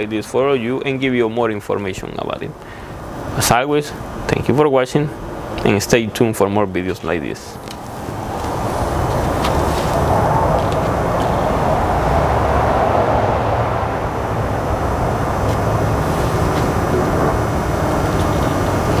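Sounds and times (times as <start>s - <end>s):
diesel engine running steadily: 13.4s - 19.0s.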